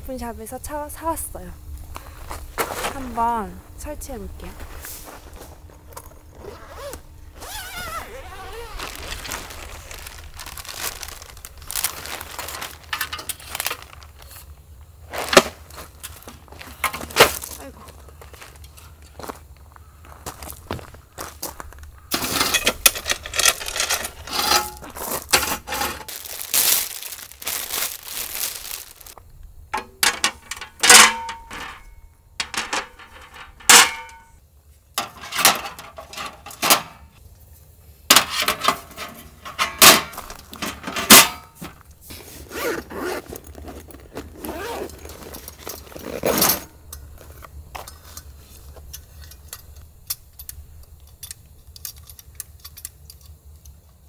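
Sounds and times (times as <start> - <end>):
soft rustling and fiddling: 1.8 - 15.0, 23.0 - 29.3
metal table parts clacking and clinking: 38.1 - 41.6.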